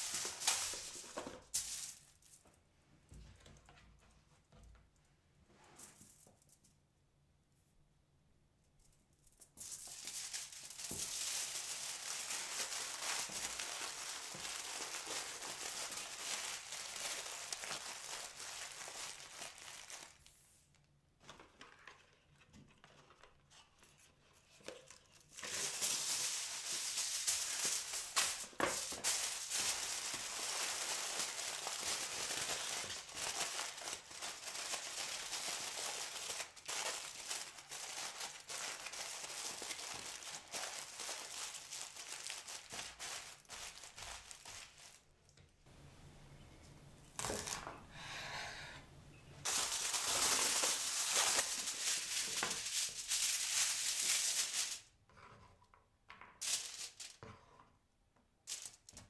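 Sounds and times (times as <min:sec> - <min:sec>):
aluminium foil crinkling: 0:00.0 - 0:02.5, 0:09.2 - 0:20.8, 0:24.6 - 0:45.1, 0:49.4 - 0:54.9, 0:56.4 - 0:57.2, 0:58.4 - 0:59.0.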